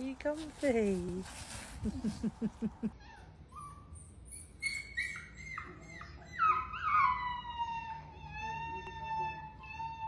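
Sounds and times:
puppy whimpering and whining: 2.9s - 10.0s.

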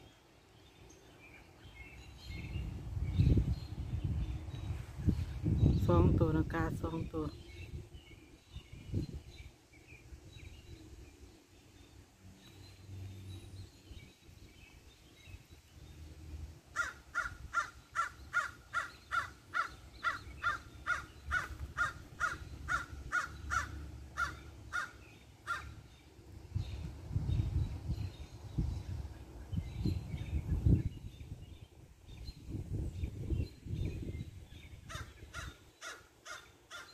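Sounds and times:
crows cawing: 16.7s - 25.8s, 34.9s - 36.9s.

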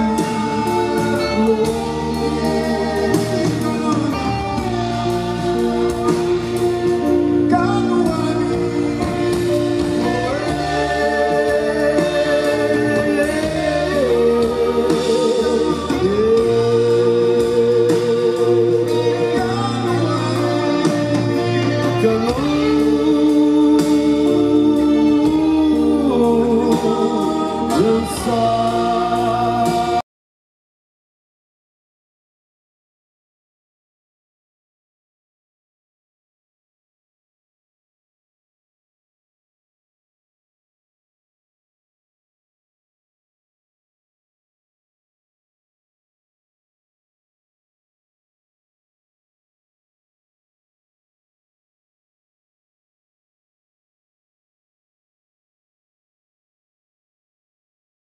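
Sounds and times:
man singing: 0.0s - 30.0s
rock band playing: 0.0s - 30.0s.

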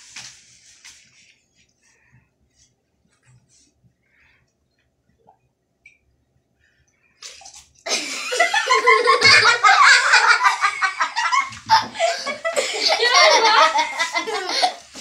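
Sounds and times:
girls laughing spluttering water: 7.8s - 15.0s.

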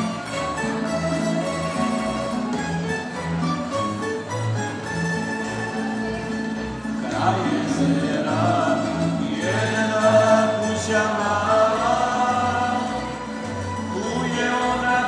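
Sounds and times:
double bass low notes: 0.0s - 15.0s
plucked string orchestra playing folk song: 0.0s - 15.0s
person singing: 7.0s - 15.0s.

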